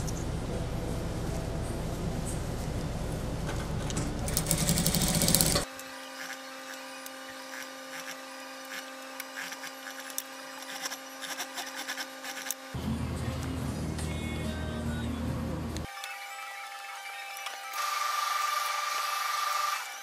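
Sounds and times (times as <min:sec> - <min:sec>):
steady electric hum: 0:00.0 - 0:05.7
sewing machine stitching fast: 0:04.3 - 0:05.6.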